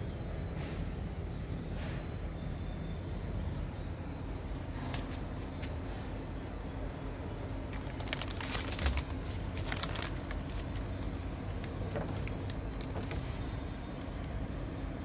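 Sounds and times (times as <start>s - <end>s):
plastic bag crinkling: 7.6s - 14.3s.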